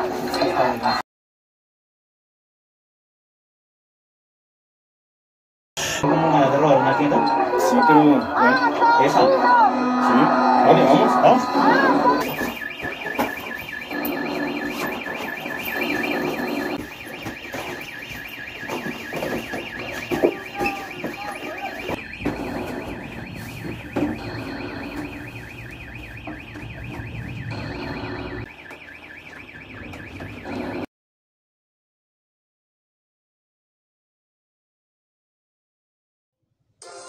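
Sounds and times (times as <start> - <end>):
pulsing electronic alarm: 5.8 - 30.9
knocks and bangs: 12.2 - 30.5.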